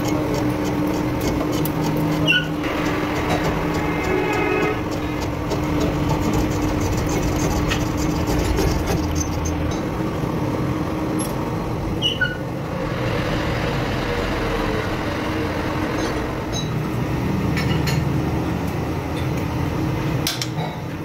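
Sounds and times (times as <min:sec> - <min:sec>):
machine humming: 0:00.0 - 0:11.8, 0:12.6 - 0:17.4
brief high squeak: 0:12.0 - 0:12.5.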